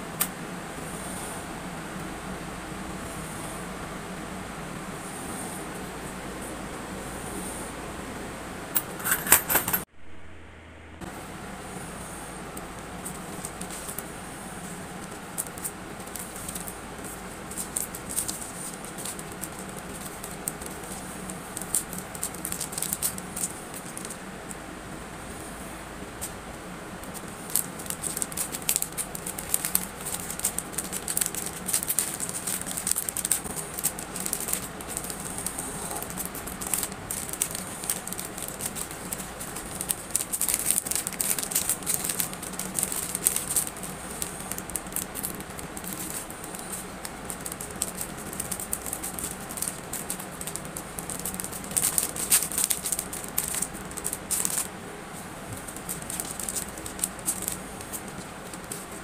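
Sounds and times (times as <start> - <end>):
packaging crinkling and rattling: 15.0 - 24.2, 27.0 - 54.7, 55.5 - 59.0.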